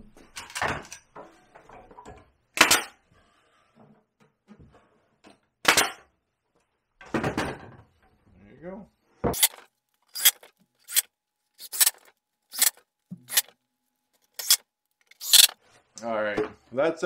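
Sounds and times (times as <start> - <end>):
nail gun shots: 2.6 - 2.9, 5.6 - 6.0, 15.2 - 15.6.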